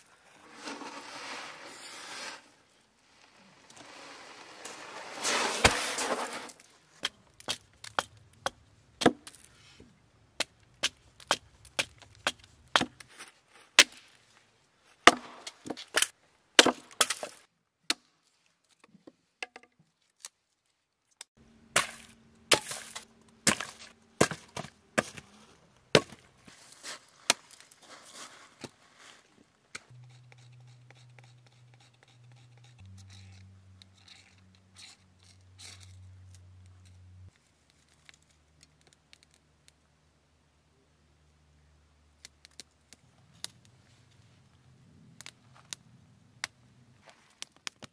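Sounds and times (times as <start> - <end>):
hatchet chopping wood: 7.0 - 9.4, 10.4 - 13.0, 15.1 - 15.8, 16.6 - 18.0, 21.8 - 25.2, 26.0 - 26.3.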